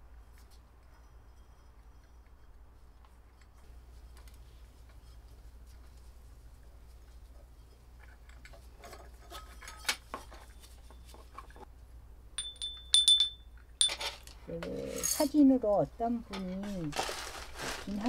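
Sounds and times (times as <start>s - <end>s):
clay parts clinking: 12.4s - 15.4s.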